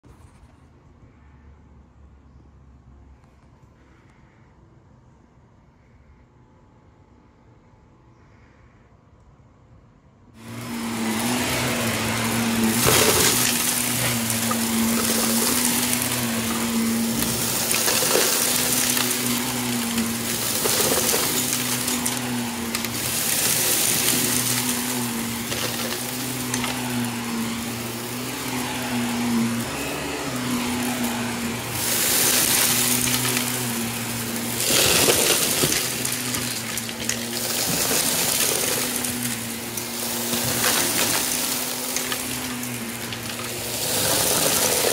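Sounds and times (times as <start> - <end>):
debris rattling in vacuum: 10.4 - 44.9
vacuum cleaner motor hum: 10.4 - 44.9.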